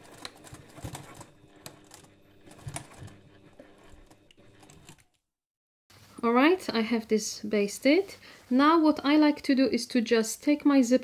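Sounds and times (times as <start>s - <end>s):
sewing machine running: 0.0s - 5.0s.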